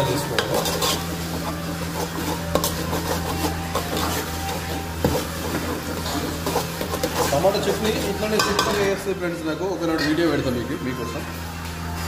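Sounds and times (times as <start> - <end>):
metal spoon stirring in pot: 0.0 - 10.5
spoon clicking and scraping pan: 0.3 - 9.0.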